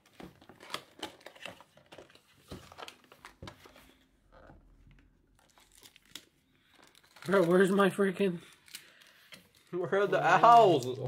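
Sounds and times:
foil wrappers crinkling: 0:05.4 - 0:11.0.

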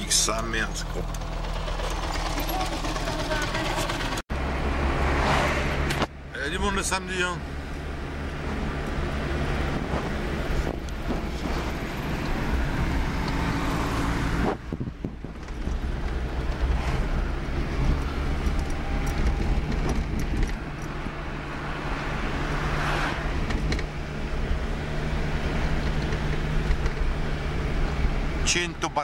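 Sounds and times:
car engine and tyre hum inside cabin: 0:05.6 - 0:28.8.

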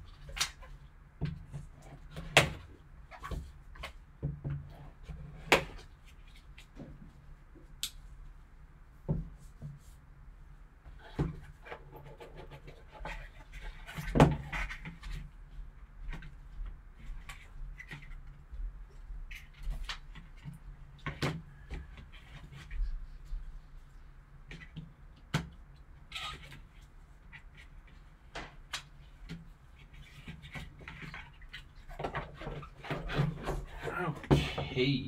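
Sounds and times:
cardboard rubbing and rustling: 0:29.8 - 0:34.5.

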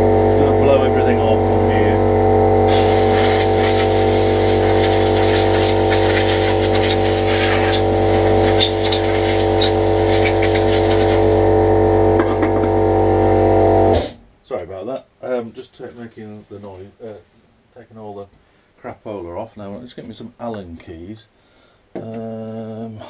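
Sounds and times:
air compressor humming: 0:00.0 - 0:14.3
air blow gun hissing: 0:02.6 - 0:11.6, 0:13.9 - 0:14.2.

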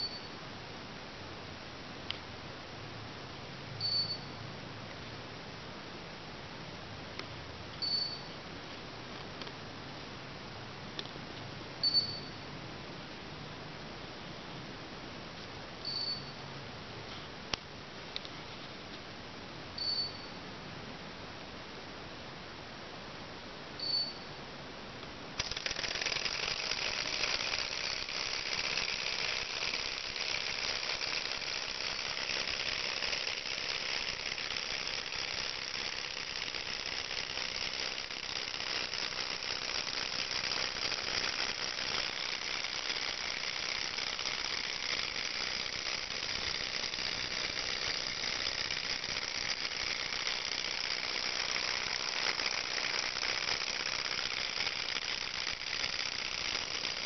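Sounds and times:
small stirling engine running: 0:25.4 - 0:57.0.

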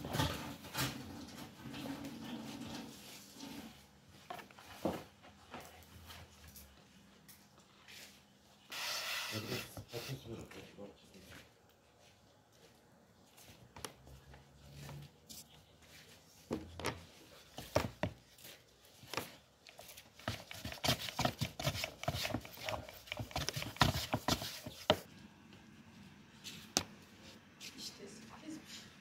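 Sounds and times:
rolling pin rubbing strokes: 0:20.2 - 0:25.1.

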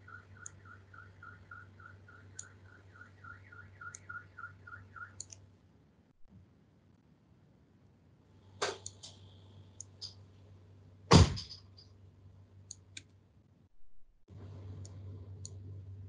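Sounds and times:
electronic alarm beeping: 0:00.0 - 0:05.3
low electrical hum: 0:00.0 - 0:16.0
sharp clicks: 0:05.1 - 0:05.5.

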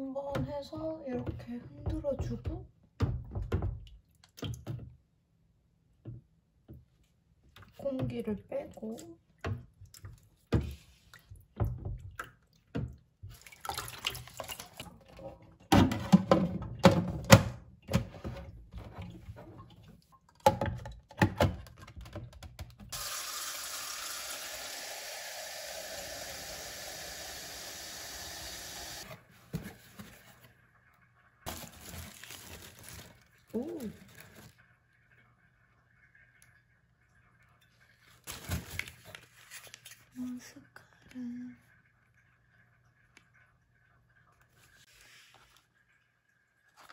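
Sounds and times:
tap water running into pitcher: 0:22.9 - 0:29.7
packing paper crinkling: 0:31.5 - 0:34.6.

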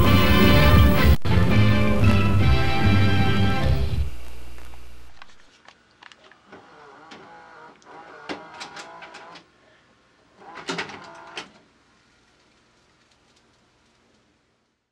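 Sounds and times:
tape mechanism whirring and clicking: 0:04.6 - 0:09.5, 0:10.4 - 0:11.6.

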